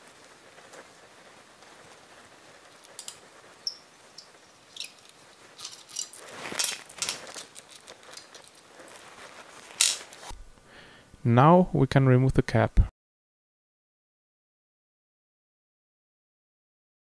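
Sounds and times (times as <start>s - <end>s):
metallic clicks of allen key and screws: 3.0s - 3.8s.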